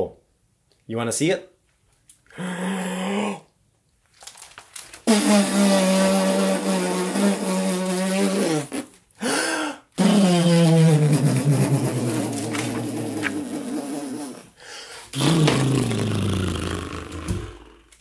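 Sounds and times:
man blowing raspberry: 2.3s - 3.5s, 5.1s - 18.0s.

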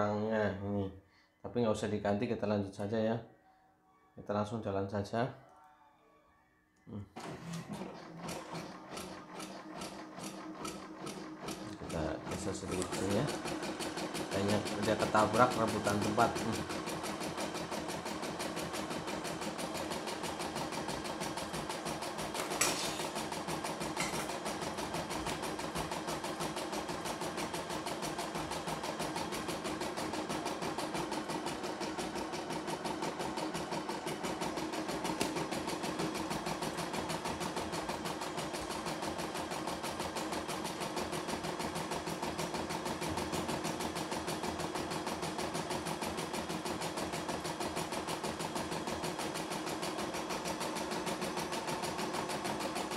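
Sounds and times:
embroidery machine stitching: 7.2s - 52.9s.

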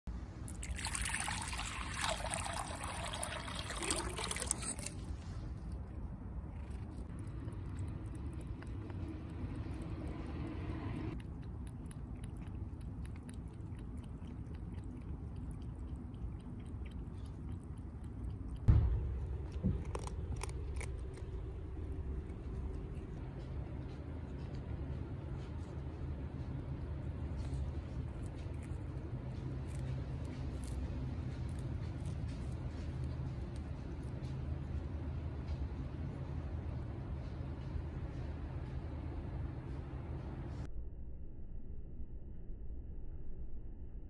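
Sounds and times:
water pouring into plastic bowl: 0.5s - 4.9s
cat drinking and eating clicks: 6.6s - 10.1s, 11.1s - 35.8s
sharp thump: 18.7s - 20.1s.

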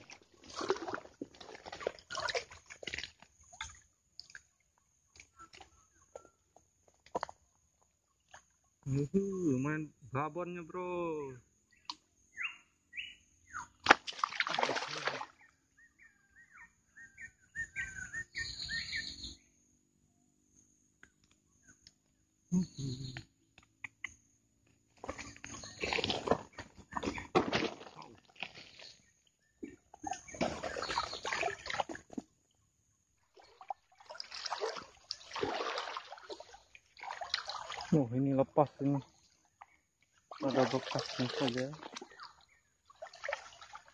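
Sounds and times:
fish splashing in water: 0.0s - 4.5s, 13.7s - 15.4s, 30.1s - 32.2s, 33.3s - 37.9s, 39.5s - 43.9s
bird chirping: 11.6s - 13.8s, 15.4s - 19.8s, 20.5s - 24.4s, 25.0s - 27.4s, 28.7s - 31.7s.

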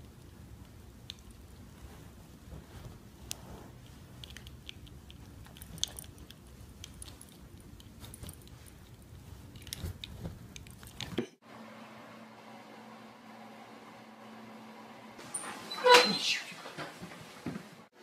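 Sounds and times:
steady low hum: 0.0s - 15.2s
dog rustling at microphone: 1.3s - 11.2s.

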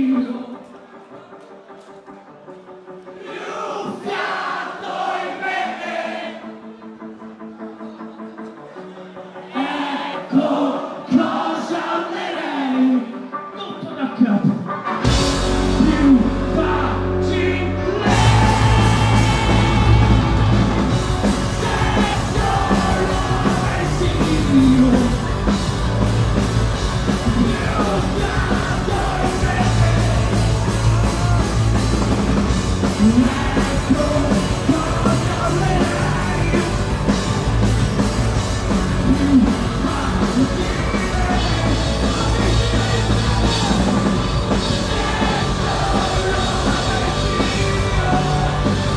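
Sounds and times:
live rock band playing: 14.4s - 48.9s
person singing: 15.7s - 25.4s, 27.1s - 31.7s, 32.8s - 37.2s, 39.0s - 48.9s.

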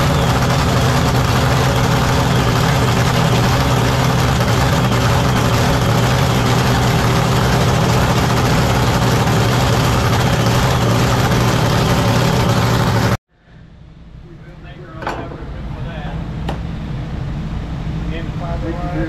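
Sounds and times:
racing engine running: 0.0s - 13.2s.

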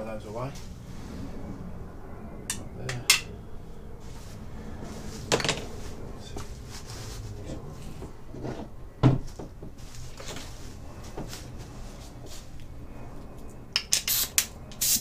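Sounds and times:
air blow gun blasts: 14.0s - 15.0s.

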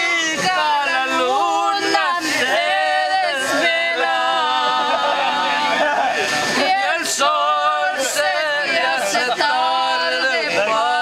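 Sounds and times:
woman singing unaccompanied: 0.0s - 5.8s, 6.6s - 11.0s.

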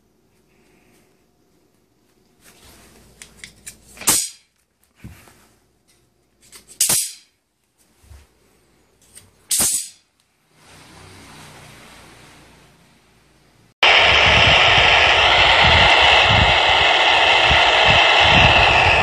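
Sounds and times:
steel tape snapping back: 3.4s - 4.5s, 6.4s - 7.3s, 9.1s - 10.0s.

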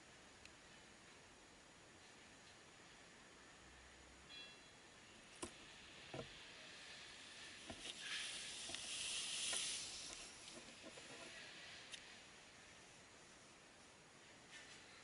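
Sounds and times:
faint knocks and scrapes: 7.4s - 12.0s.

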